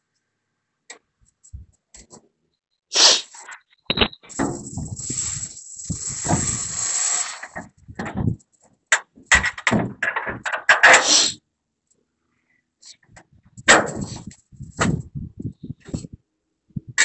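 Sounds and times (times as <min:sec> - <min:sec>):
metal scraping: 0:03.3 - 0:08.4.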